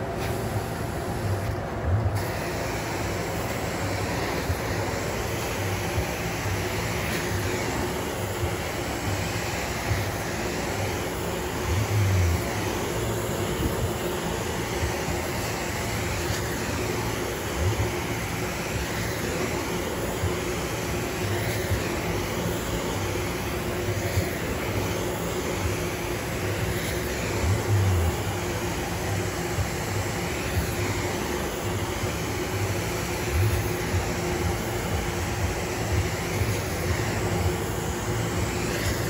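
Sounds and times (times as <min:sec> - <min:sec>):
carpet extractor suction roar: 0:00.0 - 0:39.0.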